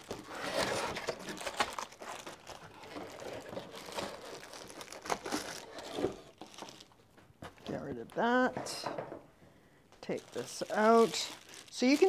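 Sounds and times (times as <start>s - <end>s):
cardboard rustling and scraping: 0.0s - 6.8s
plastic wrapping crinkling: 0.0s - 8.9s, 10.0s - 12.0s.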